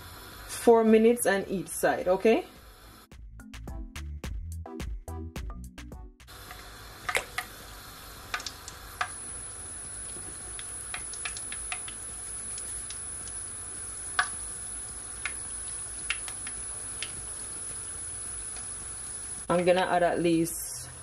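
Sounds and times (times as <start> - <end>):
dumplings sizzling in oil: 6.3 - 19.8.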